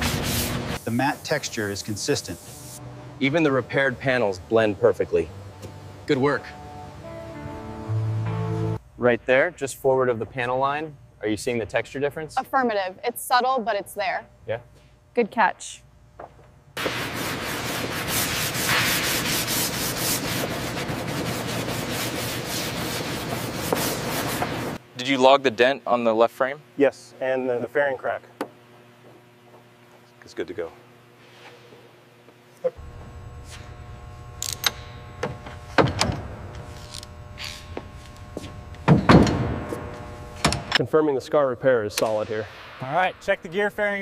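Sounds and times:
sanding back and forth: 0.0 - 2.8, 16.8 - 24.8
steady low hum: 0.0 - 44.0.

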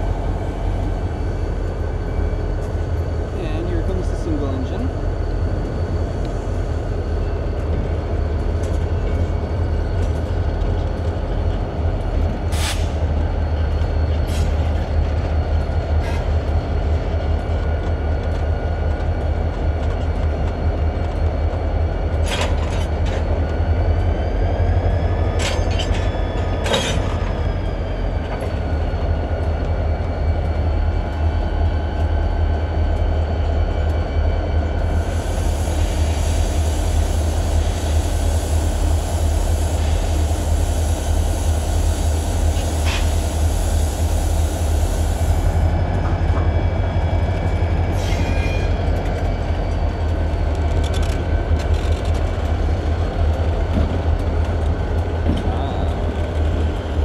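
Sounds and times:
diesel locomotive engine rumble: 0.0 - 57.0
train wheel squeal: 22.2 - 29.3, 34.7 - 51.9.

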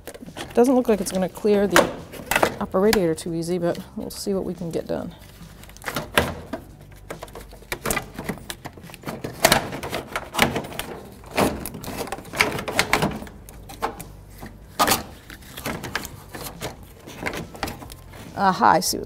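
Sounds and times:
plastic fan shroud knocking and rattling: 5.8 - 14.1, 14.8 - 18.4.

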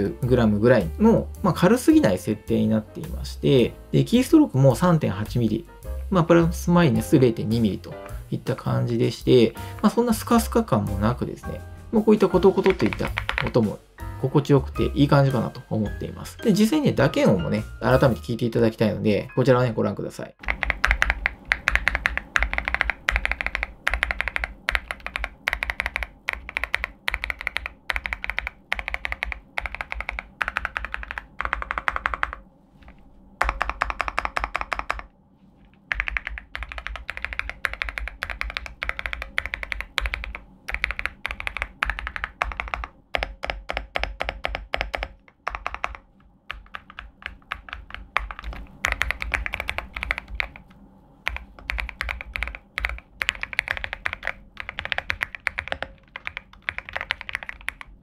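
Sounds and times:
mechanical keyboard typing: 12.2 - 13.8, 20.4 - 32.4, 33.4 - 35.1, 35.9 - 58.0.

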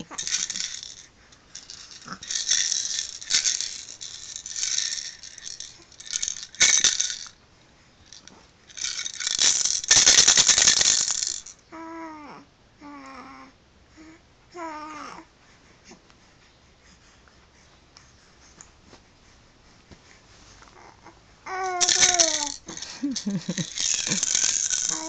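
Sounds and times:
plastic toy maraca rattling: 0.0 - 7.4, 8.1 - 11.6, 21.6 - 25.0.

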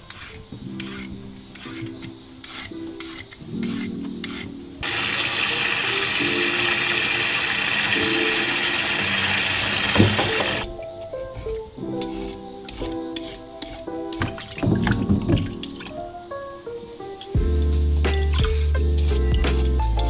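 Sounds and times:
vegetable peeler scraping: 0.0 - 10.7, 11.4 - 14.3
soft background music: 0.0 - 20.0
tap water running into sink: 4.8 - 10.7.

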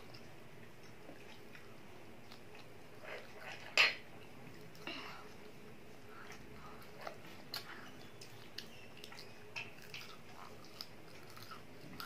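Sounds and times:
child chewing crunchy food: 0.0 - 12.0.

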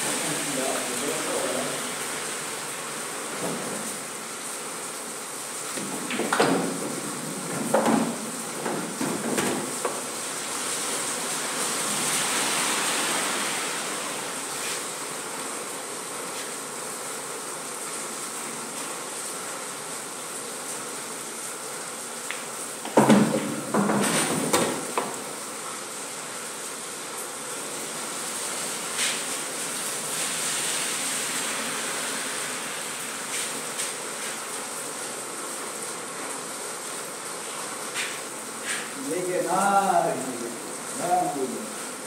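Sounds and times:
steady background hiss: 0.0 - 42.0
pool balls clacking: 5.7 - 10.1, 22.8 - 25.3.

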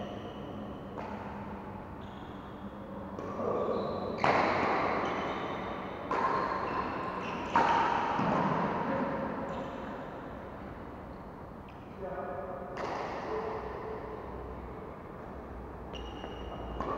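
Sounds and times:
racket hitting shuttlecock: 4.2 - 5.0, 6.0 - 9.4, 12.8 - 13.4.

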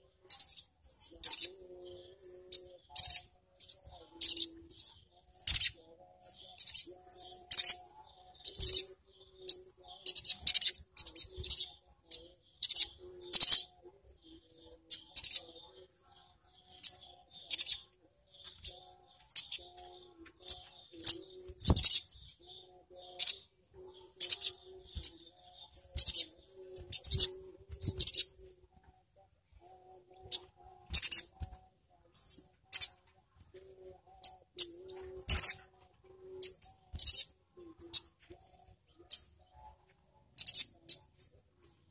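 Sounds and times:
small bird rattling chirps: 0.3 - 1.5, 2.5 - 5.8, 6.4 - 7.8, 8.4 - 13.7, 14.9 - 15.5, 16.7 - 17.8, 18.4 - 19.8, 20.4 - 22.4, 24.2 - 28.4, 30.3 - 31.6, 32.2 - 33.0, 34.2 - 35.6, 36.4 - 37.3, 40.4 - 41.1.

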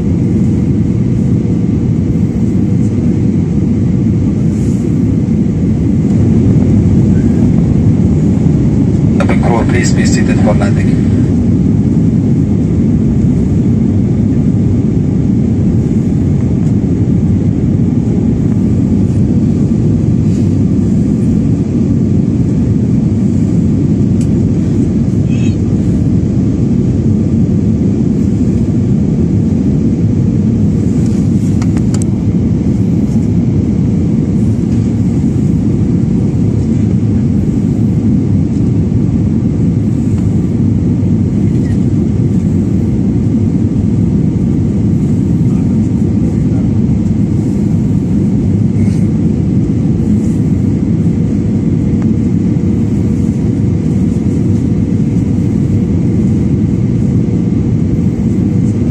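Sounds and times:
jet engine rumble in cabin: 0.0 - 58.9.

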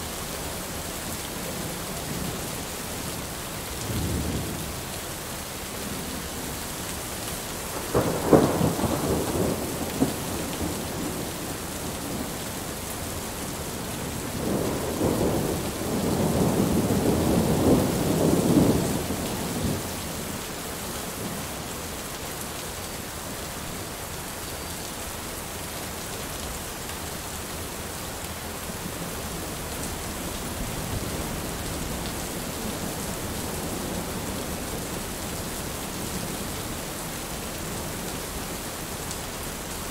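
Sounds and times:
heavy rain: 0.0 - 39.9
rolling thunder rumble: 7.8 - 12.4, 14.1 - 20.1.

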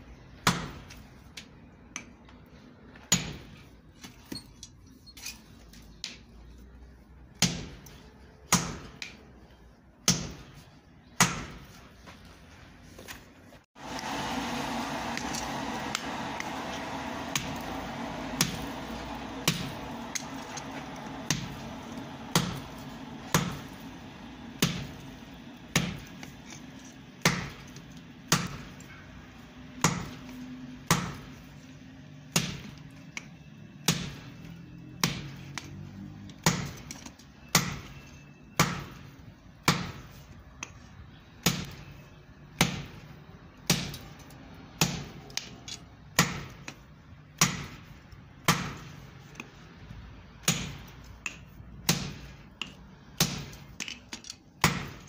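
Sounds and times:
hammer striking hot metal on anvil: 15.2 - 26.3.

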